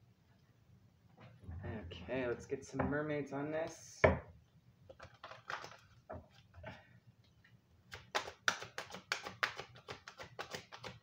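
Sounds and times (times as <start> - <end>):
cards flicking and snapping: 7.9 - 11.0.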